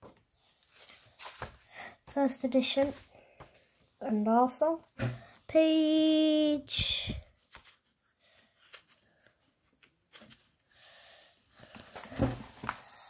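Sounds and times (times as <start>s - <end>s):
book pages being leafed through: 0.1s - 3.6s, 11.6s - 13.0s.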